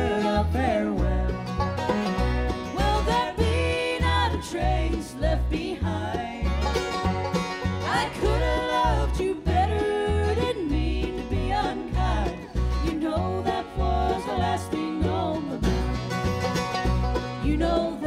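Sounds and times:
women singing: 0.0s - 1.6s, 2.6s - 6.7s, 7.8s - 15.9s, 17.4s - 18.0s
bluegrass band playing: 0.0s - 18.0s
upright bass: 0.0s - 18.0s.

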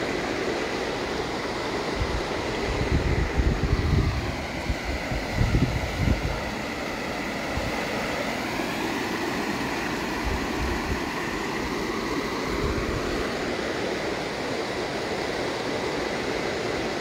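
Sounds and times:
floodwater rushing: 0.0s - 17.0s
wind buffeting microphone: 2.0s - 6.7s.

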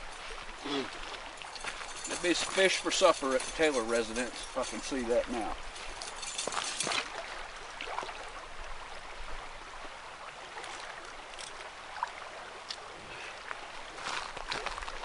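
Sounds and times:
river water rushing: 0.0s - 14.6s
clicks and rustles: 1.2s - 7.1s.

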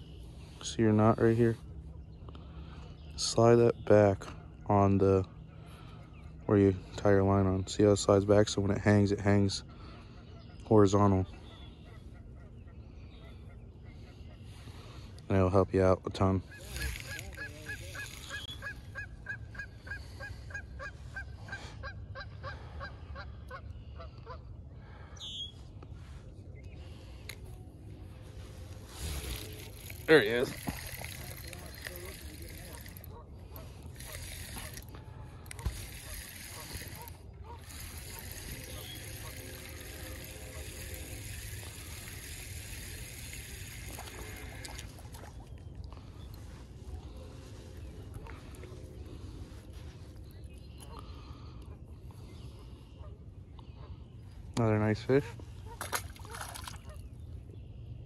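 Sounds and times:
fishing reel whirring: 16.4s - 20.6s, 27.2s - 46.4s
light water splashes: 16.5s - 18.8s, 28.5s - 47.4s, 55.6s - 57.2s.

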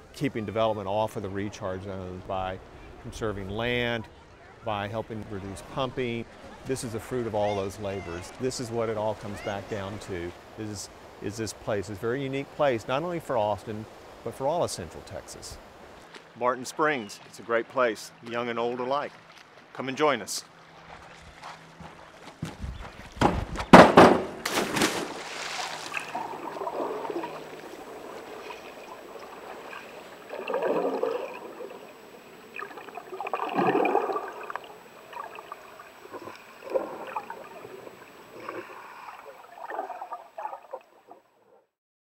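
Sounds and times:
water splashing: 6.7s - 17.6s, 24.0s - 41.5s
water gurgling and bubbling: 25.9s - 41.3s.

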